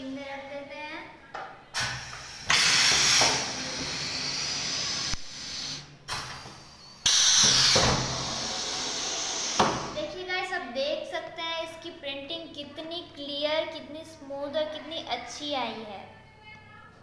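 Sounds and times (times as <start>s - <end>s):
loud bursts of machine noise: 1.8s - 6.0s, 7.0s - 10.0s.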